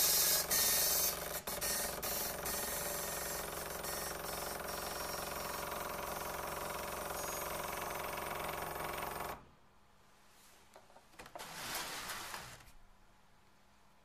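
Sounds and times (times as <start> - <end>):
dot matrix printer buzzing: 0.0 - 9.4.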